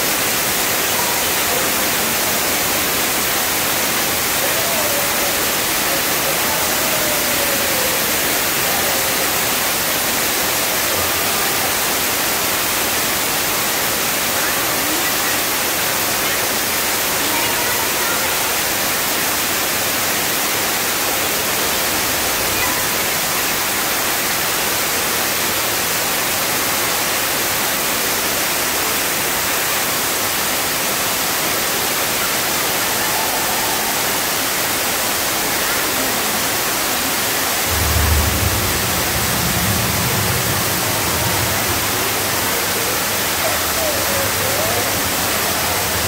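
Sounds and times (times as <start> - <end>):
waterfall splashing: 0.0 - 46.0
low rumble: 37.6 - 46.0.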